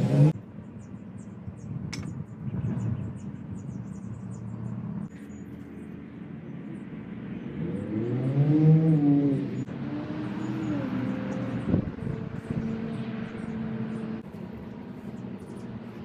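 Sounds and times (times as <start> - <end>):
vehicle engine rumbling: 8.7 - 16.0.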